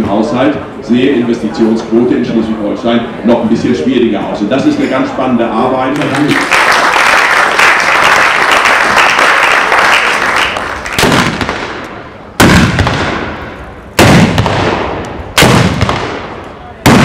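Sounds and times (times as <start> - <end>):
applause: 5.9 - 11.0
gunshots with echo: 11.0 - 17.0.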